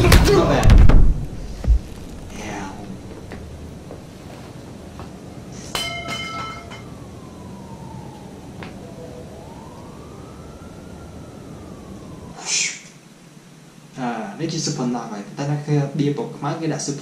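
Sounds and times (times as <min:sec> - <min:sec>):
siren wailing: 0:01.5 - 0:12.4.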